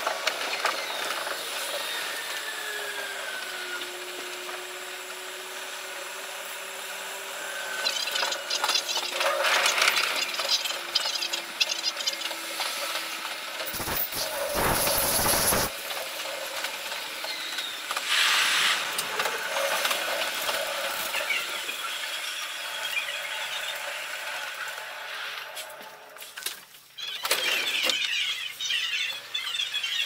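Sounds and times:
fast clatter of wheels on track: 5.6 - 18.1, 18.7 - 26.4
loud rushing burst: 13.8 - 15.7.

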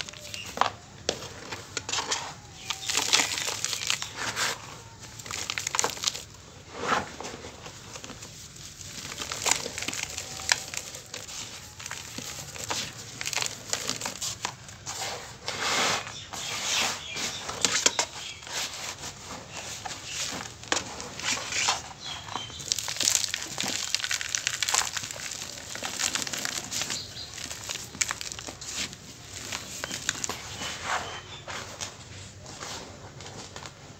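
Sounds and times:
grains clicking on plastic: 0.0 - 6.4, 7.6 - 14.8, 19.8 - 30.7.

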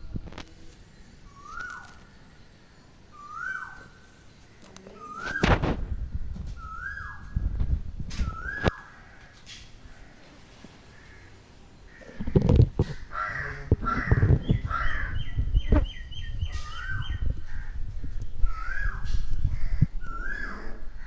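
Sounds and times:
birds calling harshly: 1.0 - 5.7, 8.2 - 21.0
low rumbling thumps: 12.2 - 20.2.

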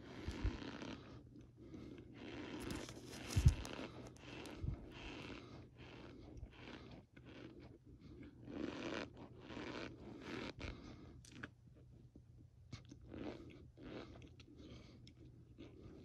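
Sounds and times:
spoon crunching cornstarch: 2.2 - 4.6.

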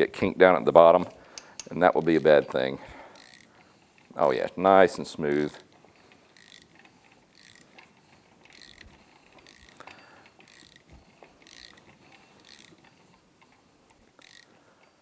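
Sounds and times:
hand ratchet clicking: 0.0 - 15.0.

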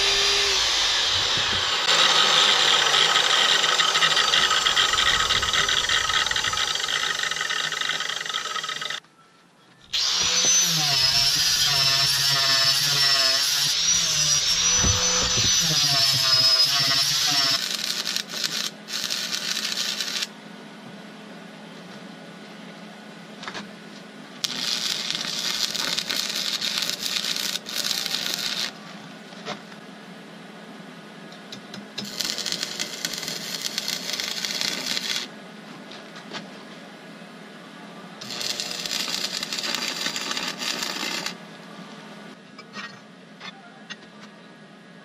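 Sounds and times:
angle grinder whine: 0.0 - 9.0, 9.9 - 20.3, 24.4 - 28.8, 32.0 - 35.3, 38.2 - 41.4
chop saw grinding steel: 0.0 - 9.0, 10.0 - 20.3.

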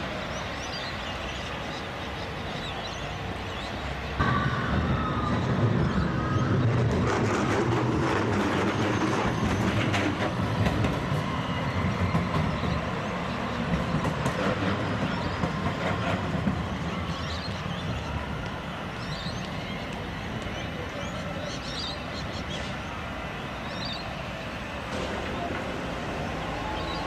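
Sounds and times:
tram wheels rumbling and clicking: 0.0 - 27.0.

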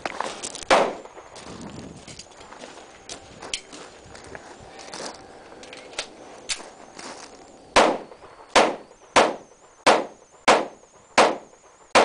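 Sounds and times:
pistol shots: 0.7 - 1.2, 7.7 - 12.0.

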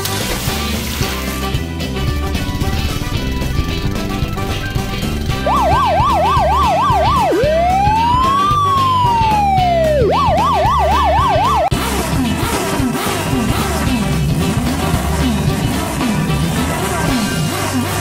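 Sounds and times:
background music: 0.0 - 18.0
police siren wailing: 5.2 - 11.8.

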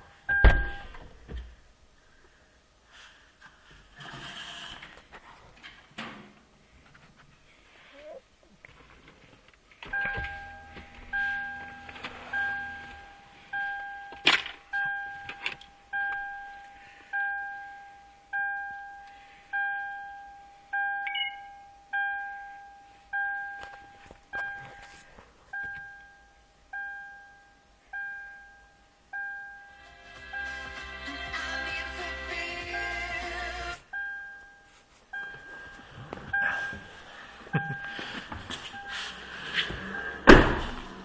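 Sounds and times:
car warning chime dinging: 9.9 - 24.7, 25.6 - 29.8, 33.9 - 35.8
radio music: 29.7 - 33.9.

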